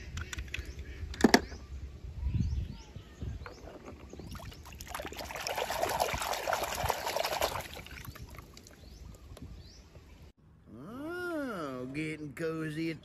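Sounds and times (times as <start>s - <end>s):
hand sloshing through water: 4.3s - 8.8s.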